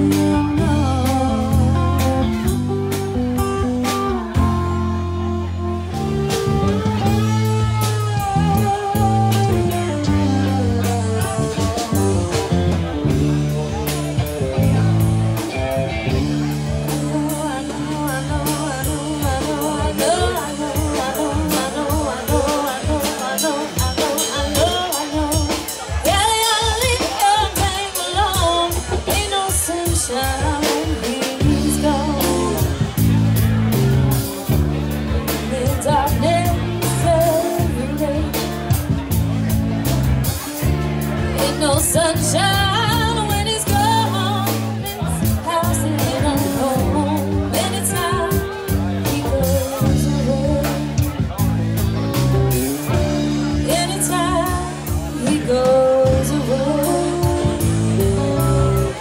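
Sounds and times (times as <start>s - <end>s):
woman singing: 0.0s - 2.7s, 7.0s - 12.0s, 16.1s - 33.2s, 35.3s - 38.9s, 41.4s - 51.3s, 53.5s - 59.0s
live band playing: 0.0s - 59.0s.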